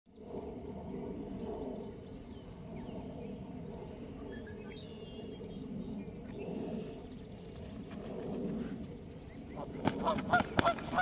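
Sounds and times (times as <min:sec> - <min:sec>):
low outdoor rumble: 0:00.2 - 0:11.0.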